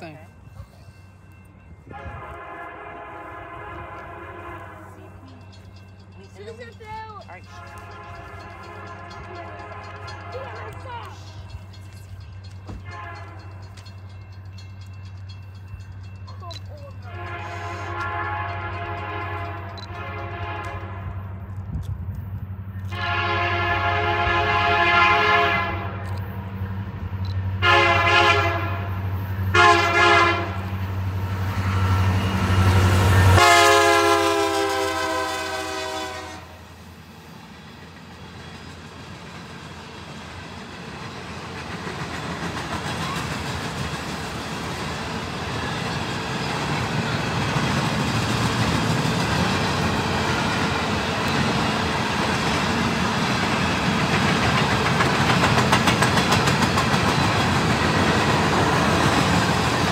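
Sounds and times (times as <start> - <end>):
locomotive horn blasts: 1.9 - 5.2, 7.5 - 11.2, 12.8 - 13.6, 17.0 - 21.4, 22.9 - 26.0, 27.6 - 30.8, 31.5 - 36.7
wheels clattering on rails: 4.9 - 20.4, 37.0 - 59.9.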